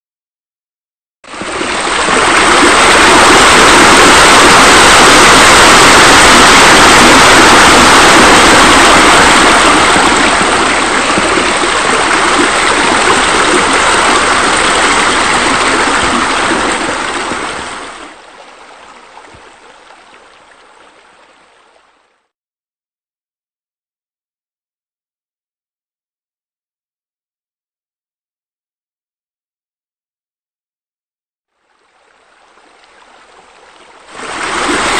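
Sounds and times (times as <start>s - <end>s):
rushing water: 1.3s - 22.3s, 31.5s - 34.9s.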